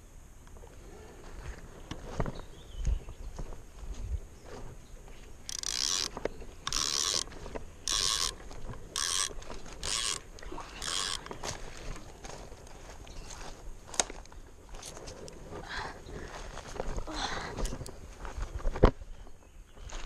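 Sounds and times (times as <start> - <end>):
fishing reel spinning: 5.5 - 6.1, 6.7 - 11.4.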